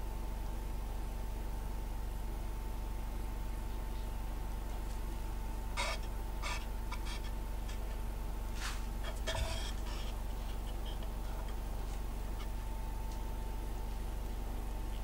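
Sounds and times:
low steady hum: 0.0 - 15.0
plastic spreader scraping: 8.5 - 12.0.

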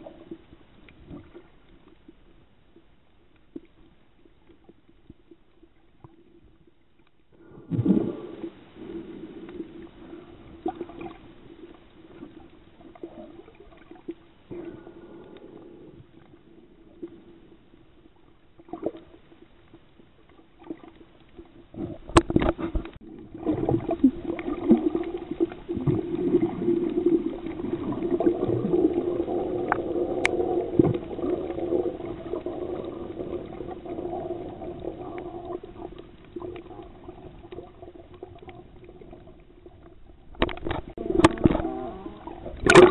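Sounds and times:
underwater water movement: 0.0 - 42.9
gurgling bubbles: 7.5 - 14.9, 20.6 - 42.9.

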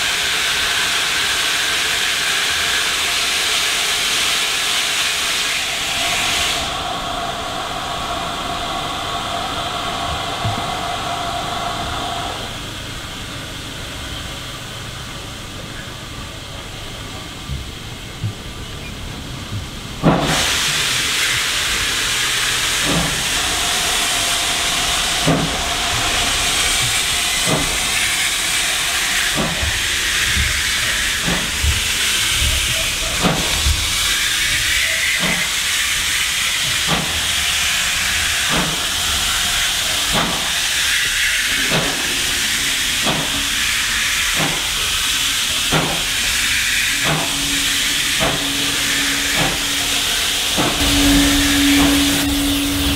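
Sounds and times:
steam hissing: 0.0 - 52.9
train wheels clicking over rail joints: 12.6 - 52.9.

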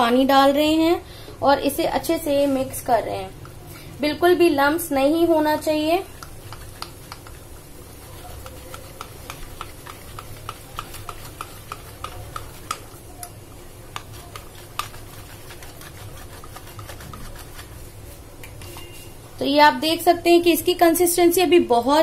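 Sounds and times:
whisk clicking against bowl: 6.0 - 17.8.

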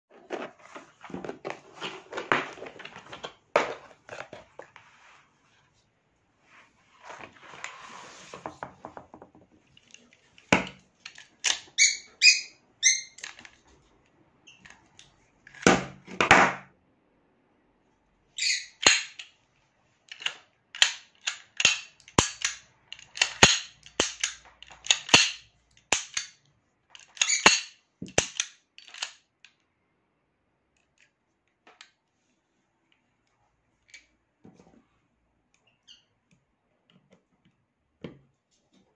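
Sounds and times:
plastic case rustling and clicking: 0.1 - 4.8.

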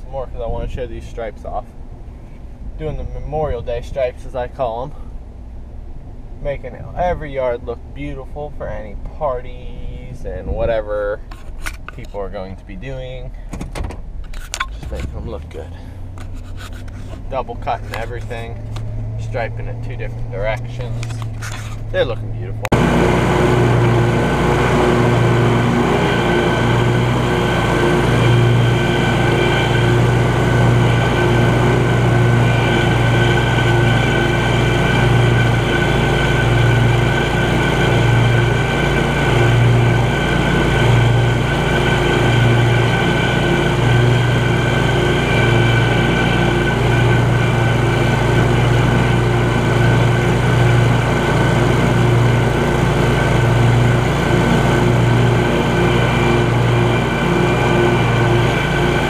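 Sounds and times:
lawn mower engine drone: 14.3 - 59.0.

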